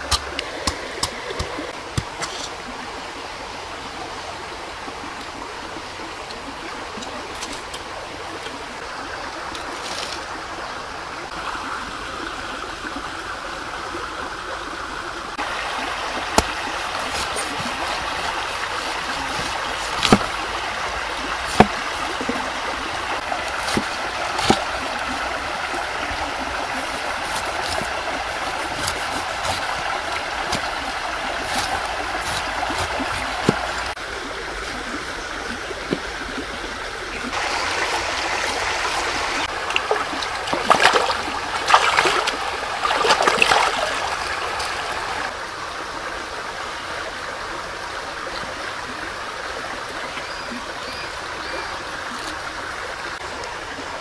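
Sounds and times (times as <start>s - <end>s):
running water rushing: 0.0s - 54.0s.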